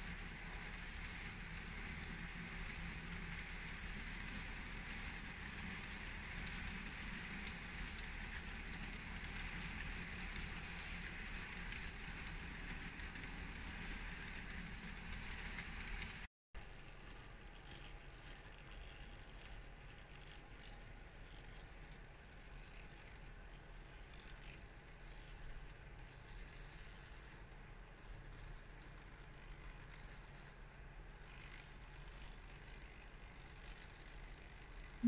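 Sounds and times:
model train wheels rattling: 0:00.0 - 0:16.3.

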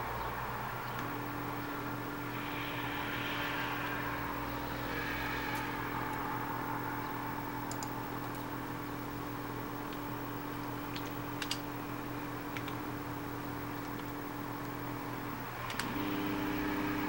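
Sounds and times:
stepper motors whining: 0:00.0 - 0:17.0
high hiss: 0:01.7 - 0:07.6.

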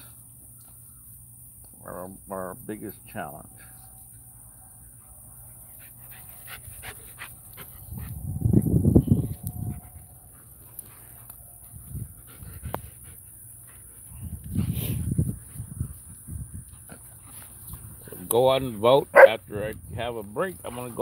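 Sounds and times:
dogs panting and scuffling: 0:05.4 - 0:08.4, 0:09.2 - 0:18.5, 0:20.5 - 0:21.0.

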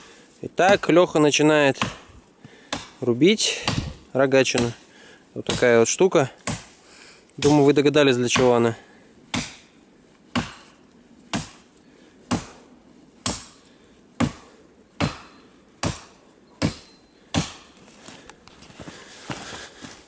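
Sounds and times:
axe chopping wood: 0:00.6 - 0:01.0, 0:01.8 - 0:02.1, 0:02.7 - 0:04.8, 0:05.5 - 0:05.8, 0:06.4 - 0:06.7, 0:08.3 - 0:08.6, 0:09.3 - 0:09.7, 0:10.3 - 0:11.7, 0:12.3 - 0:12.6, 0:13.2 - 0:13.6, 0:14.2 - 0:17.8.

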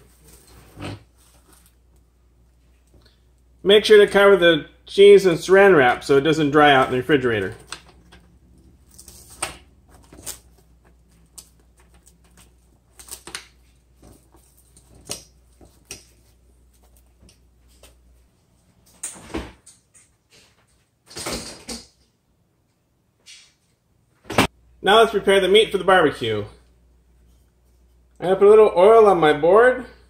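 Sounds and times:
plastic food wrap crinkling: 0:00.0 - 0:02.1, 0:07.3 - 0:17.3.

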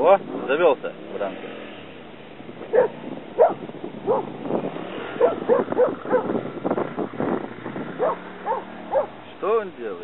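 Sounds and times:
dog barking: 0:02.7 - 0:04.3, 0:05.2 - 0:06.3, 0:08.0 - 0:09.2.

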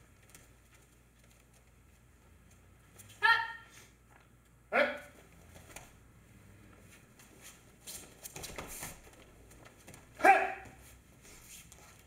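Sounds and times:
loud kiai shout: 0:03.2 - 0:03.8, 0:04.7 - 0:05.2, 0:10.2 - 0:10.8
martial arts uniforms rustling: 0:05.1 - 0:12.0.

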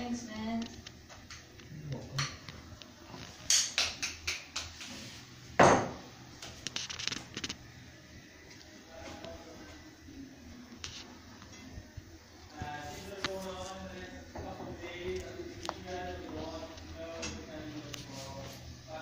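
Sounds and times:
dishes and cutlery clattering: 0:03.3 - 0:04.8.

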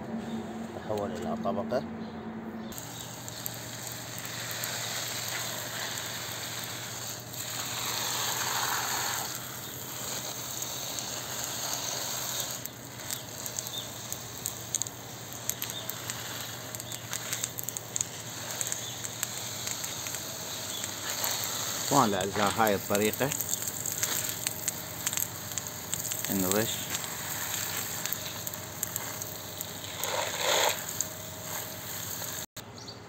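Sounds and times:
water spraying on plants: 0:02.7 - 0:32.5
water droplets ticking: 0:22.4 - 0:29.8.

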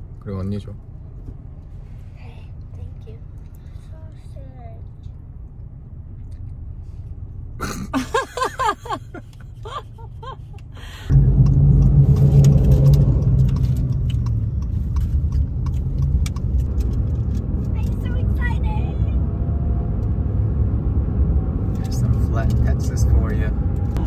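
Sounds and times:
car cabin drone: 0:00.8 - 0:24.0
child speaking: 0:02.2 - 0:05.0, 0:17.8 - 0:19.2.

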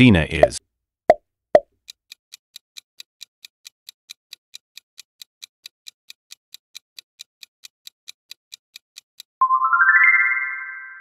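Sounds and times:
clock ticking: 0:00.0 - 0:00.6, 0:01.6 - 0:09.4.

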